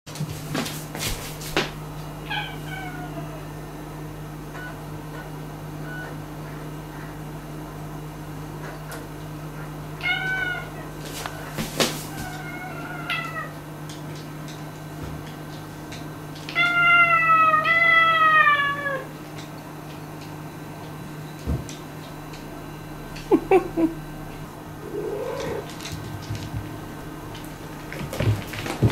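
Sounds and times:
steady low hum: 0.1s - 28.9s
cat meowing: 2.3s - 3.4s, 10.0s - 10.8s, 12.2s - 13.6s, 16.5s - 19.1s, 24.8s - 25.7s.

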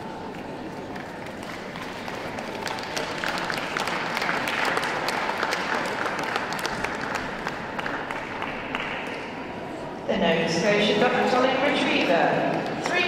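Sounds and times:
audience clapping: 0.0s - 9.6s, 12.4s - 13.0s.

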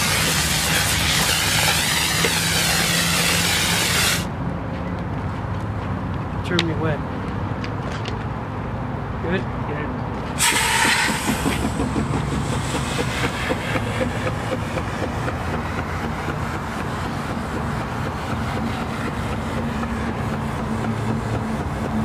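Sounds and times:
low engine drone: 10.4s - 22.0s.

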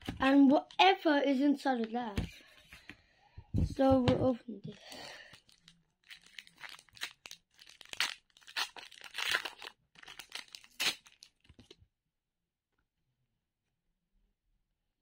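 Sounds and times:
card pack wrapper tearing: 5.3s - 11.8s.

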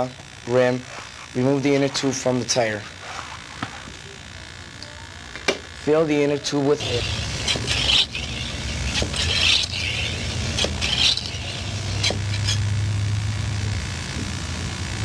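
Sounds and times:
steady low hum: 0.0s - 15.0s
bicycle pump air rush: 2.8s - 4.0s, 6.8s - 12.7s.

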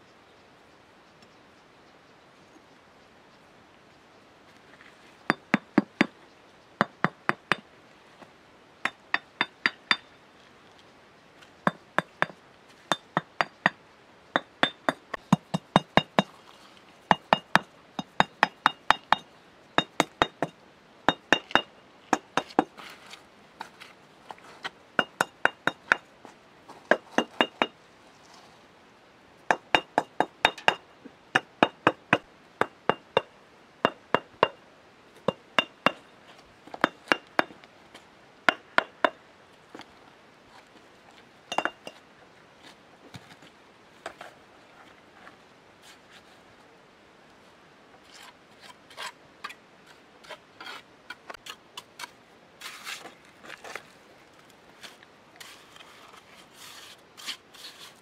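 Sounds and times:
bricks tapped into mortar: 29.5s - 30.8s, 36.7s - 37.6s, 41.5s - 42.0s.

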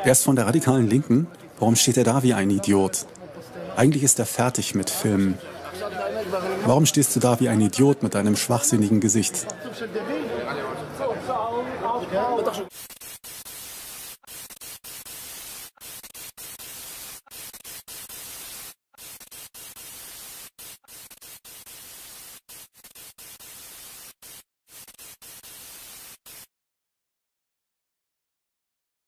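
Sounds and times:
static hiss: 12.7s - 26.5s.

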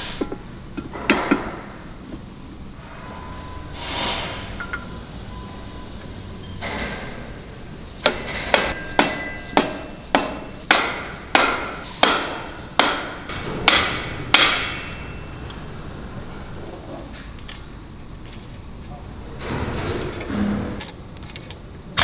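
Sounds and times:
hammer striking steel: 8.0s - 15.6s.

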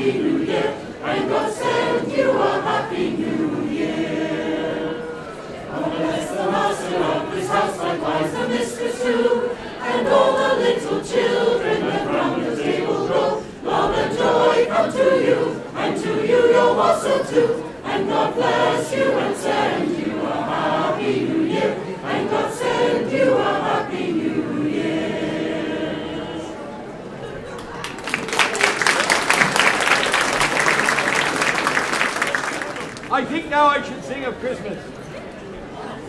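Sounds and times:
mixed choir singing a carol: 0.0s - 27.5s.

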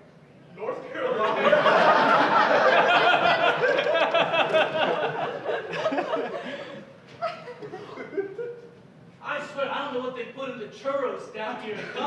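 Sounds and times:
audience laughing: 1.1s - 8.7s.

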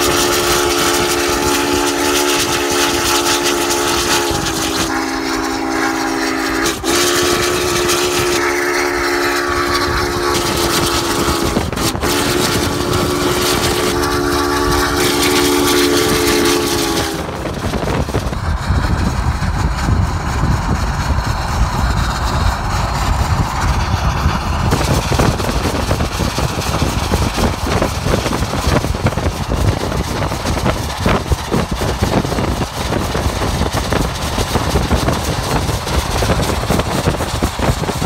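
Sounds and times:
car driving wind and road rumble: 17.1s - 38.0s.

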